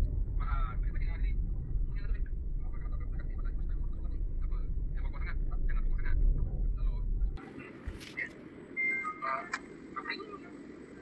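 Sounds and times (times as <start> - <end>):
car road and engine rumble: 0.0 - 11.0.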